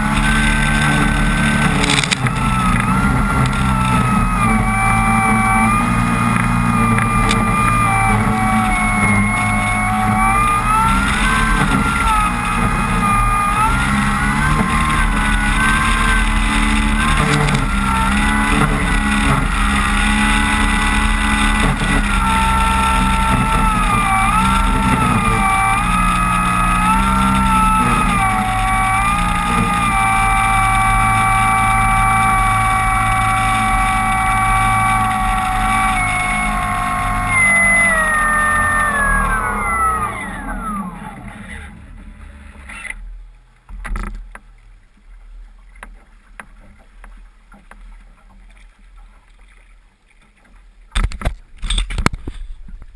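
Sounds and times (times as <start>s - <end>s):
wind on microphone: 0.0s - 41.6s
electric motor and propeller whine: 0.0s - 43.2s.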